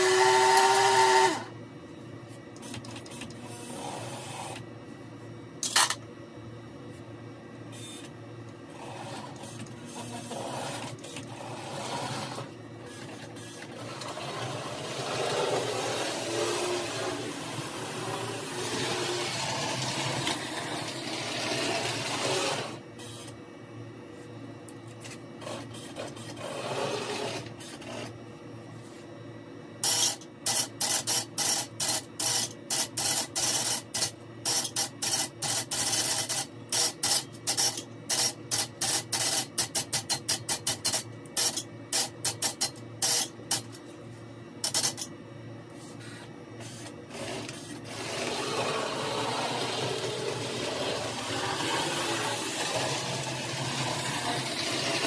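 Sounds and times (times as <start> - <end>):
toy train motor hum: 0.0 - 1.5, 13.8 - 22.8, 47.5 - 55.0.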